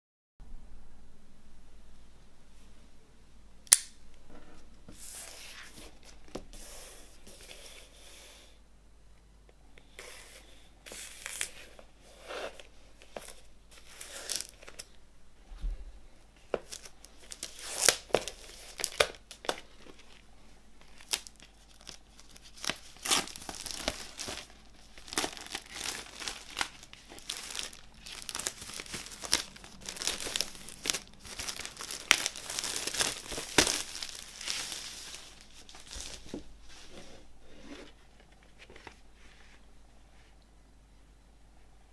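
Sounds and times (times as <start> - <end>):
sharp plastic snap: 3.7 - 4.0
plastic wrap crackling: 13.0 - 15.0, 16.4 - 36.7.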